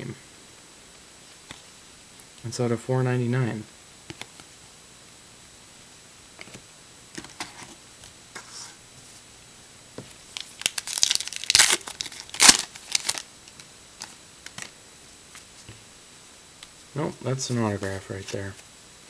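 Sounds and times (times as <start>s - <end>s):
wrapper crinkling and tearing: 10.3s - 14.7s.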